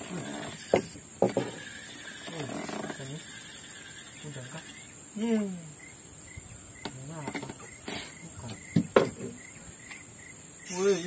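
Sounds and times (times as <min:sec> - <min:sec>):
insects buzzing: 0:00.0 - 0:11.0
sharp knocks: 0:00.7 - 0:01.6, 0:08.5 - 0:09.4
faint chirp: 0:01.6 - 0:11.0.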